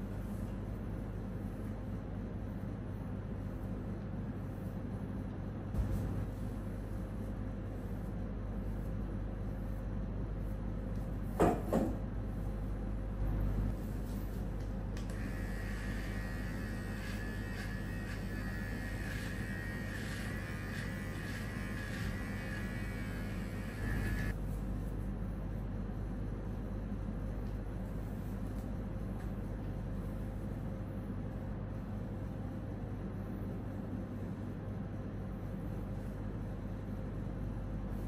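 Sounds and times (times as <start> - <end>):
electric hair clipper buzzing: 15.1 - 24.3.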